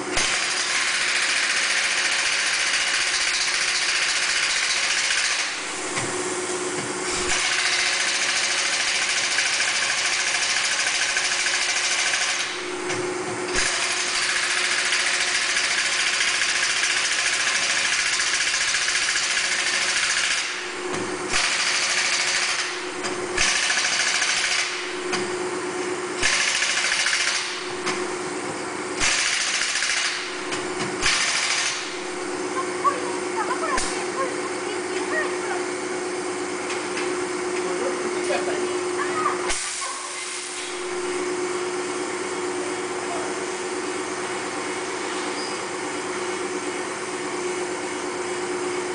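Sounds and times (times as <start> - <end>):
steady motor hum: 0.0 - 48.9
air tool rattling in bursts: 0.1 - 6.0, 7.2 - 12.7, 13.5 - 25.3, 26.2 - 28.1, 29.0 - 32.4.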